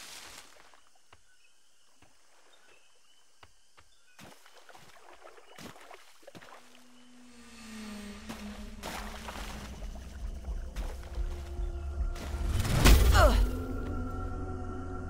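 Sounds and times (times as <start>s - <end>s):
leaves rustling: 0.0s - 1.0s, 6.4s - 13.4s
water drips and plops: 4.2s - 6.8s
footsteps splashing through water: 4.2s - 6.9s, 8.3s - 12.3s.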